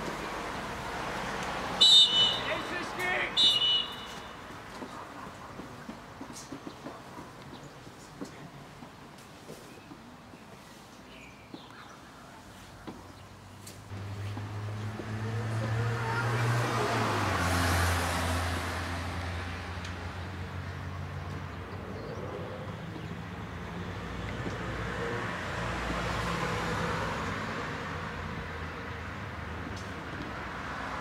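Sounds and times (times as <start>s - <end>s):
passing traffic noise: 0.0s - 31.0s
vehicle engine passing: 13.9s - 28.6s.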